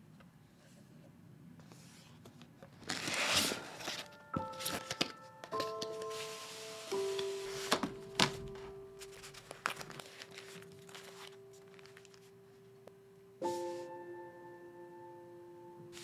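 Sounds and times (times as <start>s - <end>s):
paper packaging rustling: 1.7s - 12.6s
soft background music: 2.9s - 16.0s.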